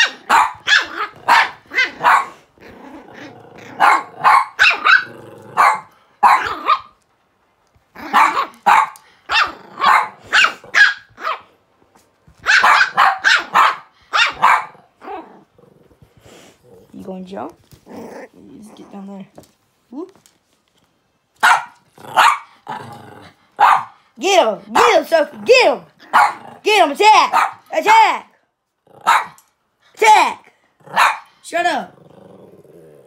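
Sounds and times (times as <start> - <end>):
puppy yapping: 0.0 - 2.4, 3.7 - 7.0, 8.0 - 11.5, 12.4 - 15.2, 21.4 - 22.5, 26.0 - 26.4
puppy growling: 0.0 - 7.0, 7.7 - 10.8, 14.2 - 19.4, 21.8 - 23.6, 25.2 - 27.0, 30.6 - 33.0.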